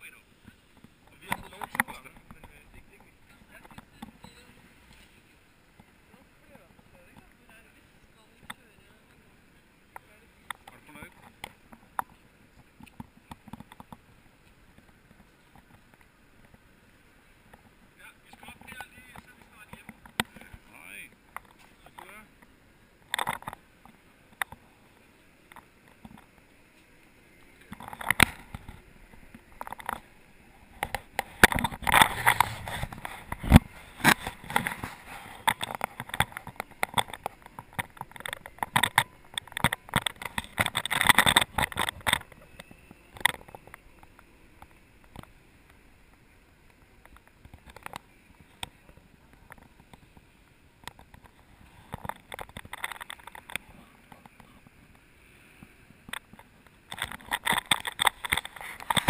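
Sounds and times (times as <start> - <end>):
wheels rattling over cobblestones: 27.2 - 55.0.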